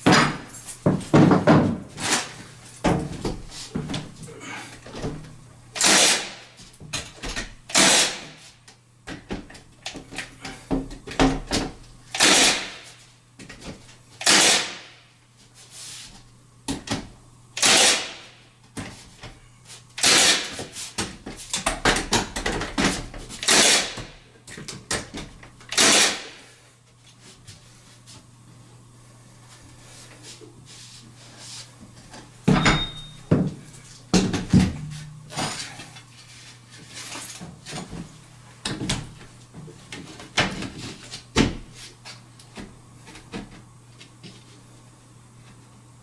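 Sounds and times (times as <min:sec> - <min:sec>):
nail gun firing: 0:05.8 - 0:06.4, 0:07.7 - 0:08.3, 0:12.2 - 0:12.8, 0:14.2 - 0:15.0, 0:17.6 - 0:18.3, 0:20.0 - 0:20.6, 0:23.4 - 0:24.1, 0:25.7 - 0:26.4.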